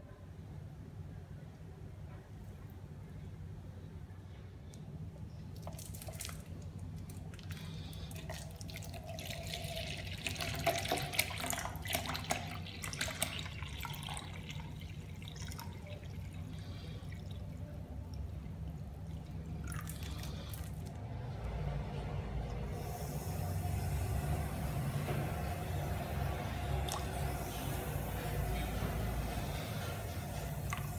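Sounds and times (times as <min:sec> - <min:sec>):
steady low hum: 0:00.0 - 0:30.9
liquid splashing and gurgling: 0:05.6 - 0:21.5.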